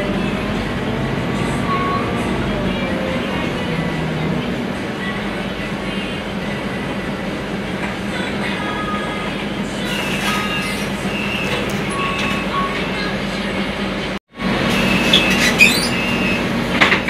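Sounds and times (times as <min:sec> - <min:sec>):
bus engine rumble and hum: 0:00.0 - 0:17.0
short squeaks and rattles: 0:09.9 - 0:12.8, 0:14.7 - 0:17.0.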